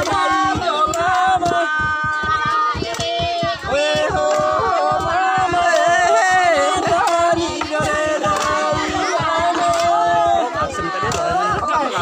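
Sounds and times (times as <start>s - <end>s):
group singing a chant: 0.0s - 12.0s
wooden pestles pounding in mortar: 0.0s - 12.0s.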